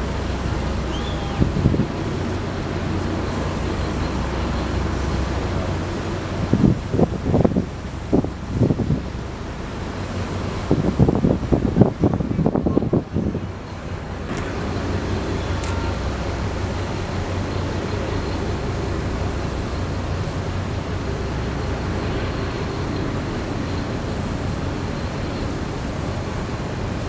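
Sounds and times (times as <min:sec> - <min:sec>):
constant low hum: 0:12.4 - 0:27.0.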